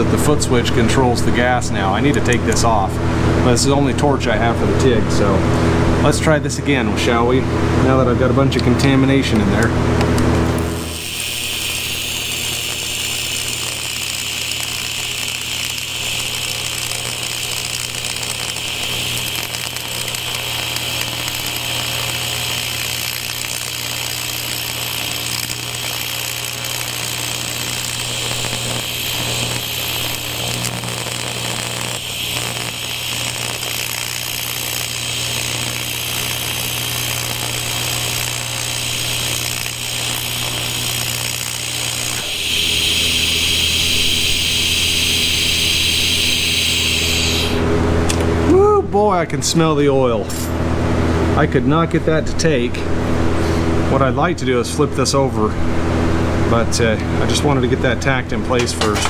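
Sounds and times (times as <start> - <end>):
welding arc buzzing: 8.9 - 48.4.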